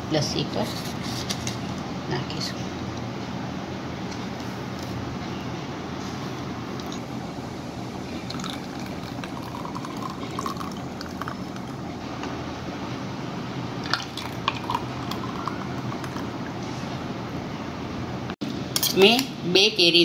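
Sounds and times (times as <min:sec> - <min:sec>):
thick liquid pouring into glass: 0:08.0 - 0:11.9, 0:13.8 - 0:16.5.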